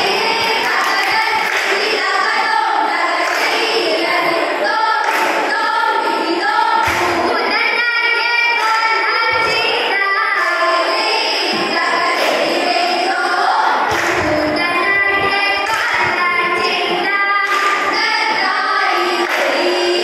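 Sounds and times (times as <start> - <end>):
women singing boat song: 0.0 - 20.0.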